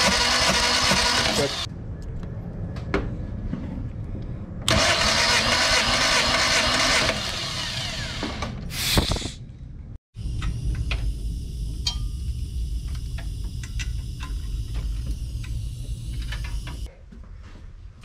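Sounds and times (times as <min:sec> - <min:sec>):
compressed air hissing: 0:08.7 - 0:09.4
steady low hum: 0:09.4 - 0:18.0.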